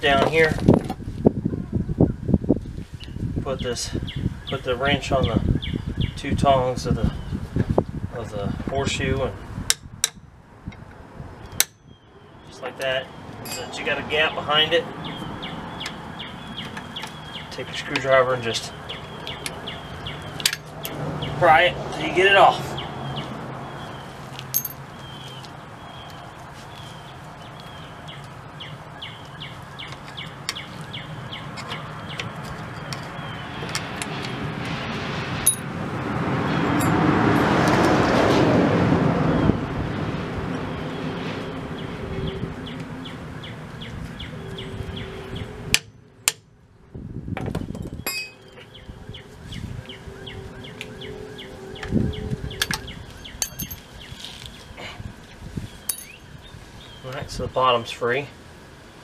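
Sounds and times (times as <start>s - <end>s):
bird chirping: 3.0s - 6.2s, 11.4s - 21.5s, 22.5s - 34.3s, 40.7s - 45.7s, 47.8s - 57.3s
steel tools clinking on metal: 13.4s - 13.8s, 24.5s - 24.8s, 48.1s - 48.4s, 53.4s - 53.8s, 55.9s - 56.2s.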